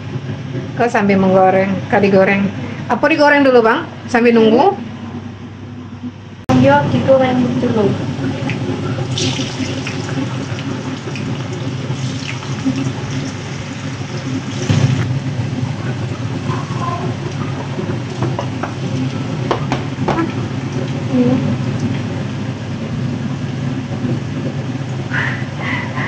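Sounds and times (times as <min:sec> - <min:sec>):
egg sizzling in a frying pan: 0:08.6 - 0:15.1.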